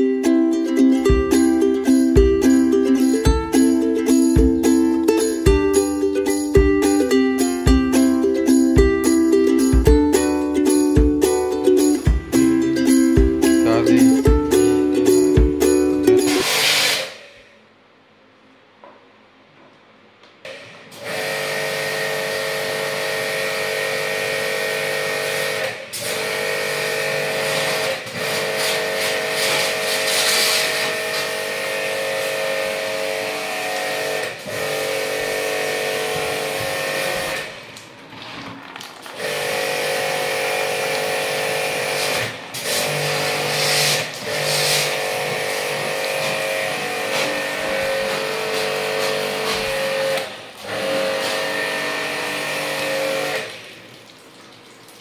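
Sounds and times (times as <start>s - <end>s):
pressure washer motor hum: 1.0s - 17.2s, 20.9s - 38.0s, 39.0s - 53.8s
water jet hissing: 12.3s - 17.3s, 27.1s - 31.7s, 39.2s - 53.9s.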